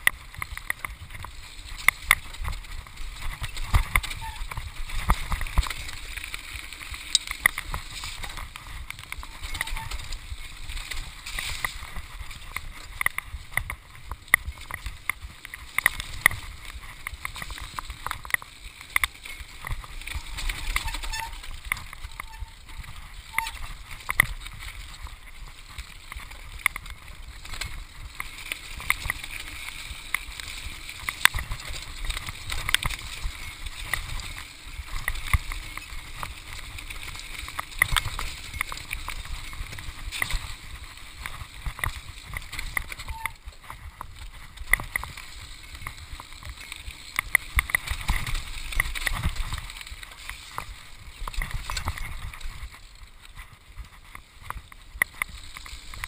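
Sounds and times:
bike clattering over bumps: 0.0s - 56.0s
bike tyres rolling over dirt: 0.0s - 56.0s.

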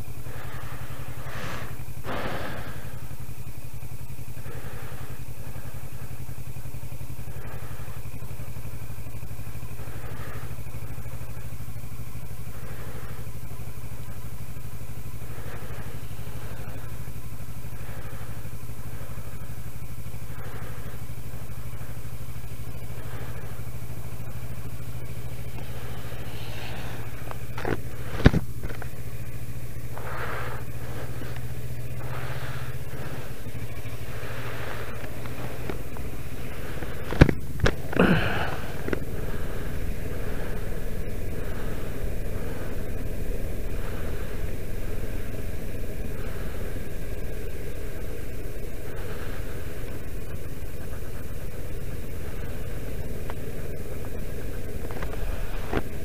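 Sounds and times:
motorcycle engine running: 0.0s - 56.0s
road noise: 0.0s - 56.0s
swells of hiss: 15.5s - 53.3s.

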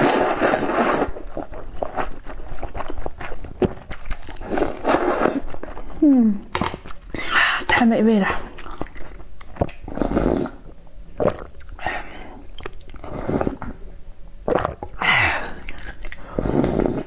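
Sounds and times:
person slurping soup: 0.0s - 1.4s, 9.9s - 13.8s, 14.5s - 17.0s.

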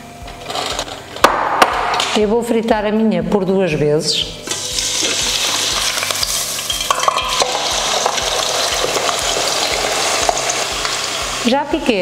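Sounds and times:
potatoes sizzling in hot oil: 4.5s - 12.0s.

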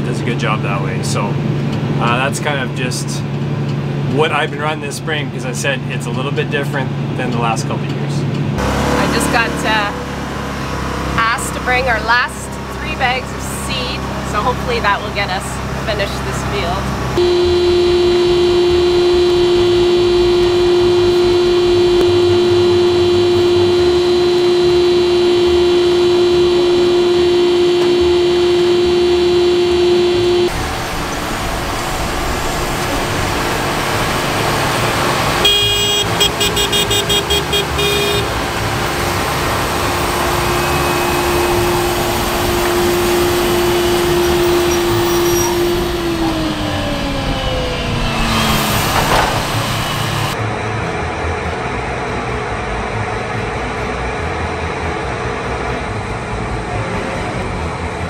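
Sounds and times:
machine whine: 17.1s - 50.6s
tractor engine rumble: 30.2s - 50.4s.

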